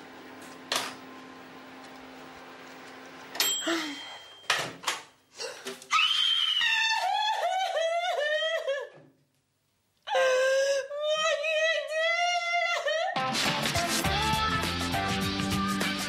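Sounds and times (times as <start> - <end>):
woman shrieking with laughter: 5.9 - 9.0.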